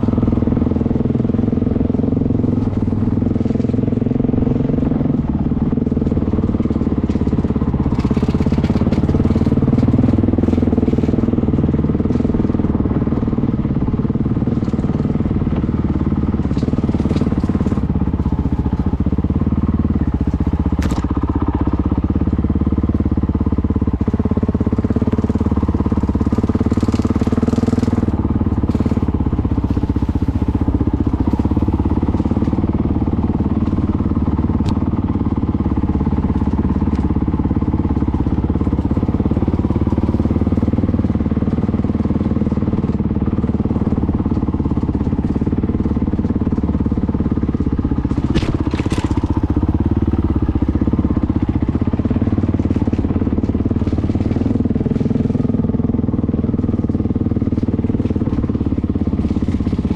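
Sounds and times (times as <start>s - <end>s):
motorcycle engine running at low revs: 0.0s - 59.9s
loud rattle: 41.4s - 59.9s.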